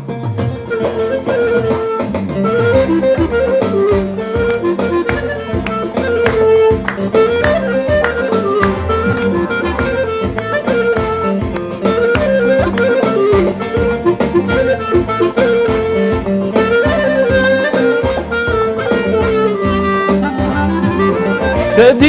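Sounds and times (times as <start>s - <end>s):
keyboard backing with beat: 0.0s - 22.0s
clarinet melody: 0.6s - 22.0s.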